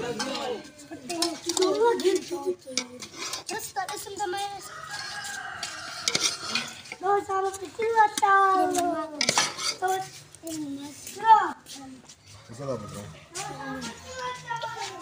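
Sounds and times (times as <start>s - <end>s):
steel plates and pot clinking: 0.0s - 4.2s, 5.7s - 7.0s, 9.1s - 10.1s
rooster crowing: 4.6s - 6.7s.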